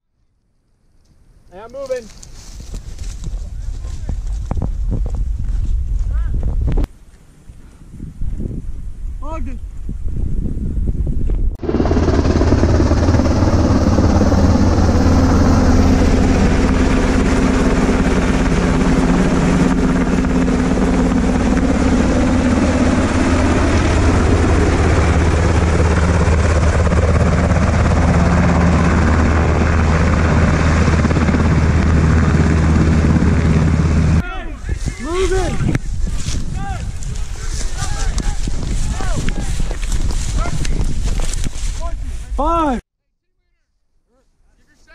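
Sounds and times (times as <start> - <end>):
helicopter rotor and turbine noise: 1.0 - 6.3, 9.3 - 42.8.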